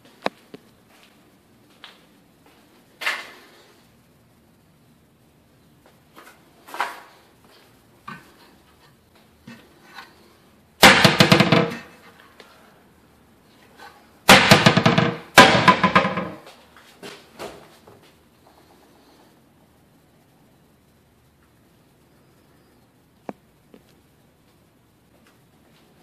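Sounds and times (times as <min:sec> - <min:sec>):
cabinet doors rattling bangs: 0:10.8 - 0:12.0, 0:14.3 - 0:16.4.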